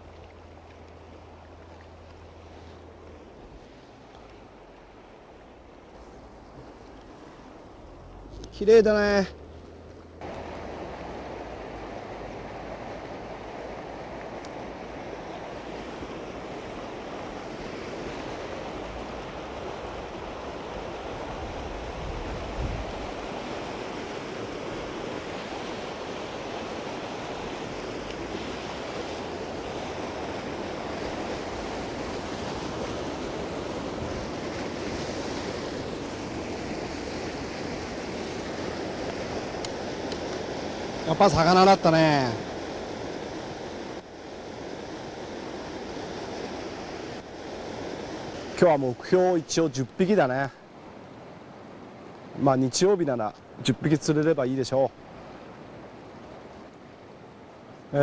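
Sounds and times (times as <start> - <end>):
river rapids rushing over rocks: 10.2 - 50.5.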